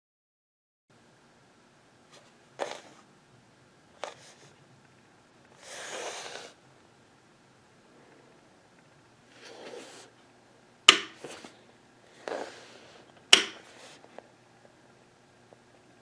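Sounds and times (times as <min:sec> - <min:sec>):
brushing noises of handling: 0:05.6 - 0:06.6, 0:09.3 - 0:10.2, 0:11.2 - 0:14.3
toggle switch clicks: 0:13.3 - 0:13.6.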